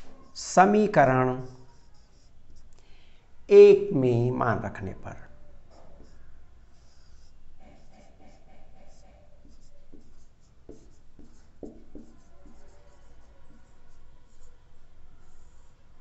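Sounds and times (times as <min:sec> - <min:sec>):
marker pen on whiteboard: 0:00.0 - 0:16.0
marker taps: 0:06.8 - 0:13.7.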